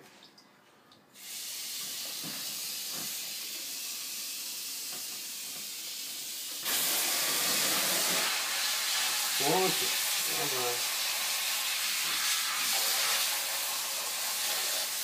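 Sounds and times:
tap water spraying into sink: 1.2 - 15.0.

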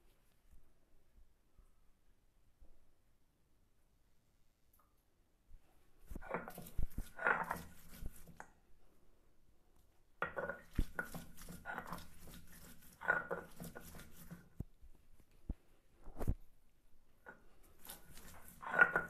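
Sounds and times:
stone crushing and grinding garlic: 6.2 - 8.4, 10.2 - 14.5, 17.8 - 19.0.

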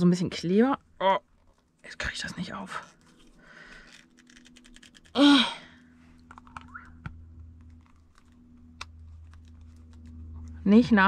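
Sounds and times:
faint clicks and fumbling: 2.7 - 5.2, 6.2 - 10.6.

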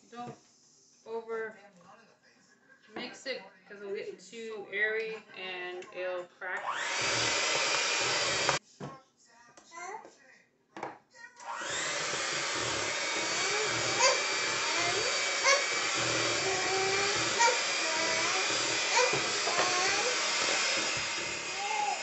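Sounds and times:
electric hand mixer running: 6.6 - 8.6, 11.4 - 22.0.

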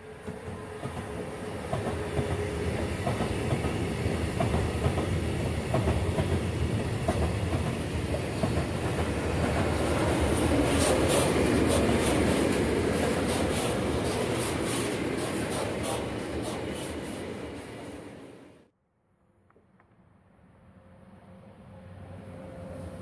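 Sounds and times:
freight train wheels rumbling: 0.0 - 18.5.

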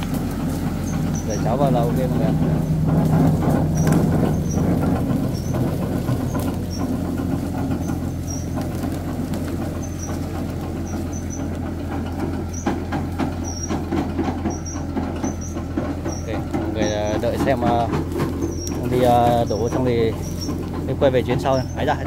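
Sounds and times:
tractor diesel engine running: 0.0 - 22.0
short high squeaks: 0.8 - 1.7, 9.7 - 11.6, 12.3 - 17.7.

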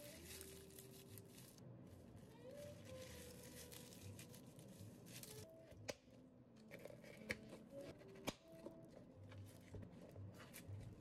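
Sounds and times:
faint paper rustling: 0.0 - 5.5.

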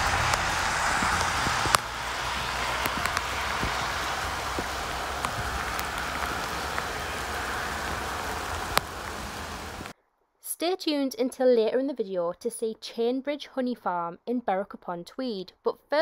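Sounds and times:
steady rain hiss: 0.0 - 9.9.

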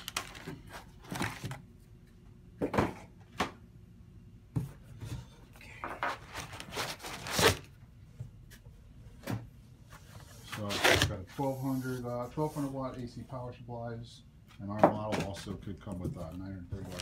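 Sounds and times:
plastic rustling: 0.0 - 1.6, 16.8 - 17.0.

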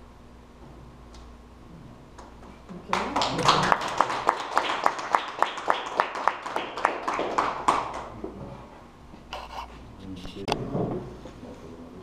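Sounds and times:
people clapping: 2.2 - 8.2.

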